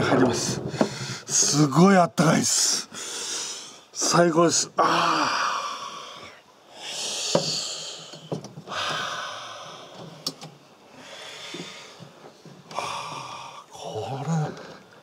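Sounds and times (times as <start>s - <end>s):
man breathing out heavily: 4.8s - 10.0s.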